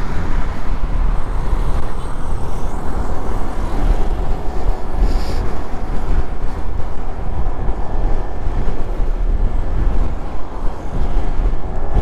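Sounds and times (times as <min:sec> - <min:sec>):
road noise: 0:00.0 - 0:12.0
wind buffeting microphone: 0:00.0 - 0:12.0.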